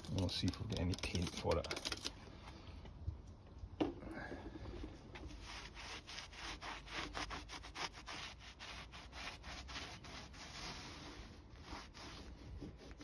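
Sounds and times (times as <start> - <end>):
cloth wiping metal: 5.2 - 13.0.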